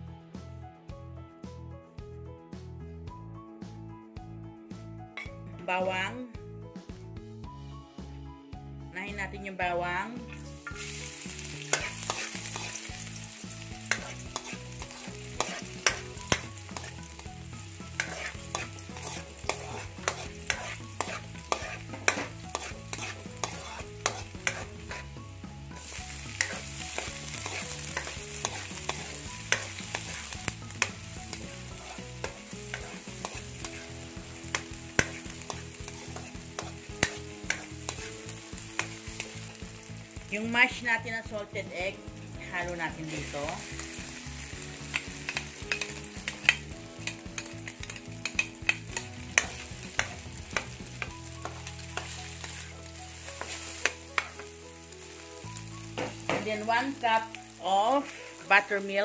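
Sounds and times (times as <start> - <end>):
garlic sizzling in oil: 9.9 - 59.0
metal spatula scraping pan: 10.3 - 13.1, 13.8 - 17.2, 17.9 - 25.2, 26.0 - 38.2, 44.9 - 50.8, 51.4 - 52.7.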